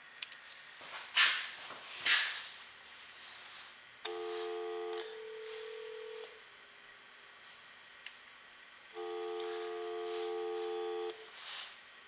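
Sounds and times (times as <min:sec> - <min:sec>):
phone dial tone: 0:04.1 - 0:06.4, 0:09.0 - 0:11.2.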